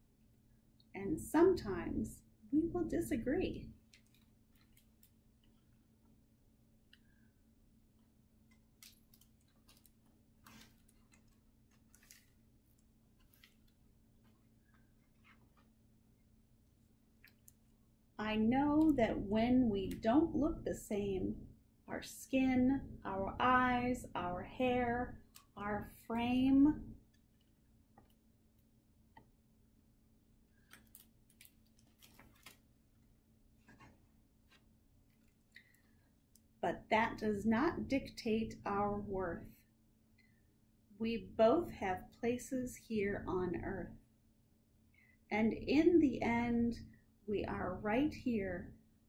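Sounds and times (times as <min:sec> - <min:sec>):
book pages being turned: 0:03.8 - 0:05.8, 0:08.6 - 0:15.8, 0:30.6 - 0:35.8.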